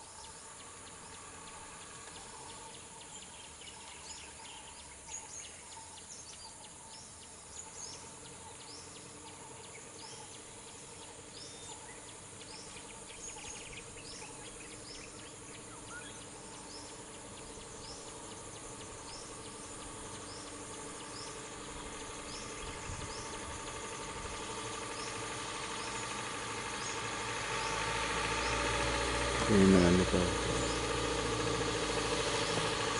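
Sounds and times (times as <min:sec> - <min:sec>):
insect-like hiss: 0:00.0 - 0:32.9
minibus engine: 0:00.0 - 0:32.9.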